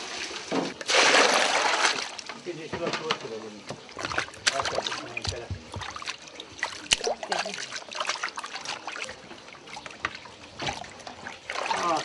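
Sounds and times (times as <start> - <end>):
water splashing and dripping: 0.0 - 12.0
hands squeezing in water: 3.9 - 9.2.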